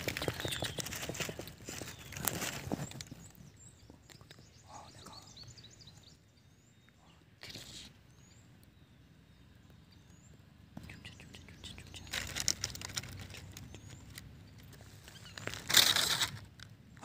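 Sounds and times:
dry leaves crackling: 0:00.0 - 0:03.5, 0:11.8 - 0:16.8
bird chirping: 0:00.0 - 0:17.0.

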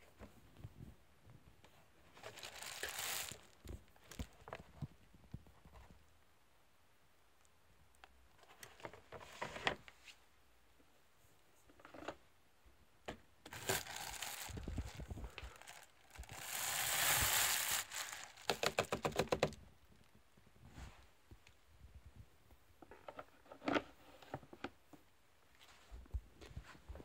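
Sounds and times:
plastic bag crinkling: 0:02.2 - 0:04.3, 0:13.5 - 0:19.6
cat litter pouring into bag: 0:02.3 - 0:03.6, 0:13.5 - 0:18.8.

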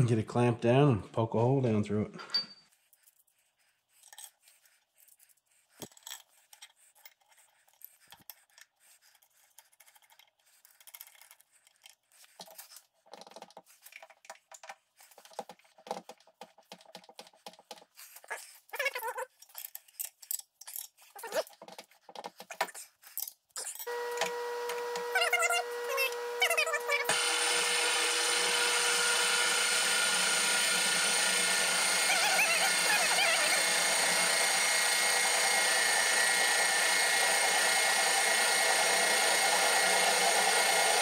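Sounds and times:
drill press motor humming: 0:23.9 - 0:41.0.

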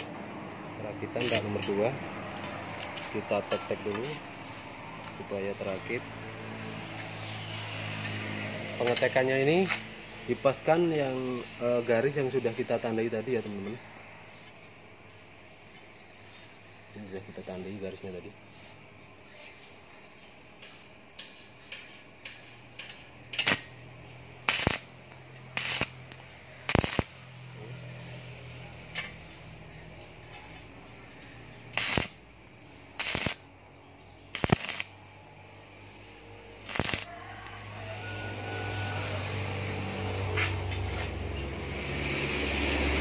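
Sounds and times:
stick welder bursts: 0:01.2 - 0:01.8, 0:23.3 - 0:27.4, 0:31.5 - 0:32.2, 0:32.9 - 0:33.5, 0:34.3 - 0:35.0, 0:36.6 - 0:37.1.

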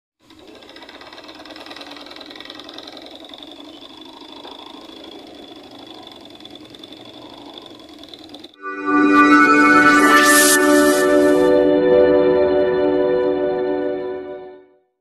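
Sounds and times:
small motor whining: 0:00.2 - 0:08.6
fast fine ticking: 0:00.3 - 0:08.6.

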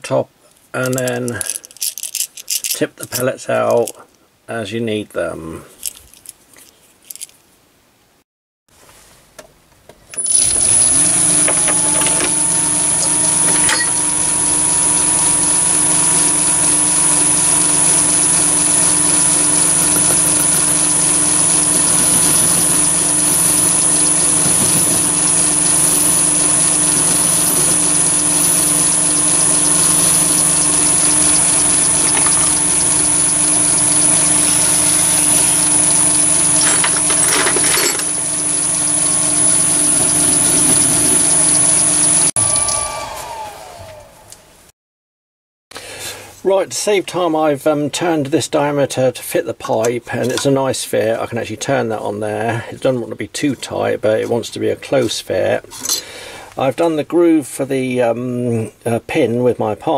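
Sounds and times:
lathe running with high whine: 0:10.2 - 0:44.3.

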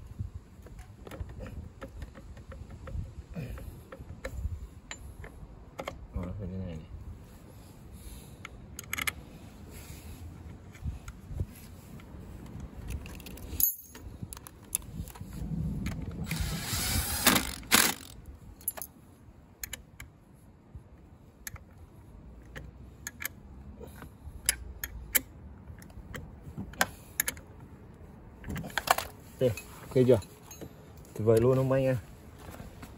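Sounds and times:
metallic clicks and clinks: 0:12.8 - 0:15.2, 0:17.4 - 0:19.0.

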